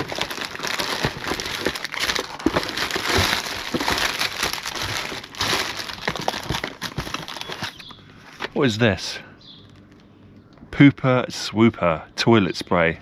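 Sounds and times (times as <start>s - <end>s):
items knocking and clicking: 0.0s - 8.6s
packaging crinkling: 0.0s - 8.6s.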